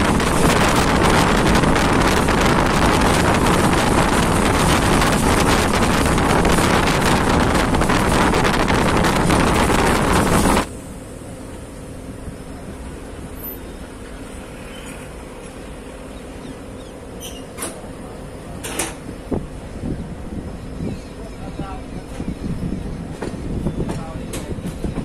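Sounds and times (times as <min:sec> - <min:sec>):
wind rushing over microphone: 0:00.0 - 0:10.7, 0:19.1 - 0:25.0
train running noise: 0:00.0 - 0:25.0.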